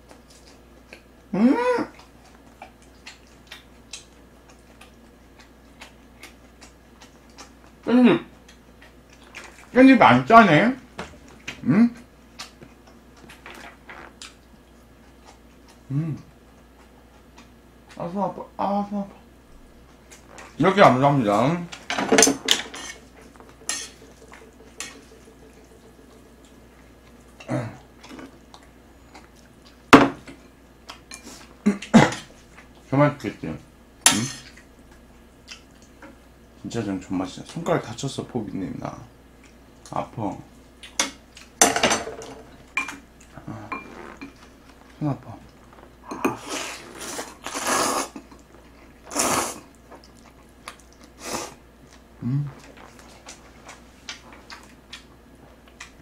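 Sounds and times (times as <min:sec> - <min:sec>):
person slurping noodles: 0:46.2 - 0:48.2, 0:49.1 - 0:49.6.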